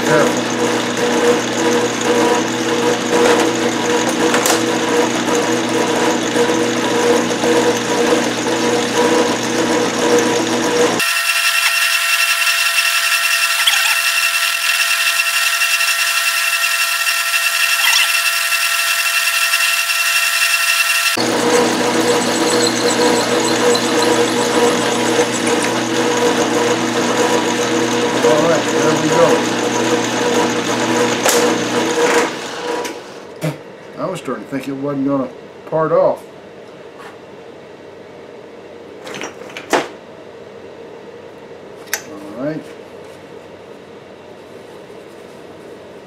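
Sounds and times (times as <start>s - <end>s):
metal lathe humming: 0.0s - 33.1s
thin high whine: 11.0s - 21.3s.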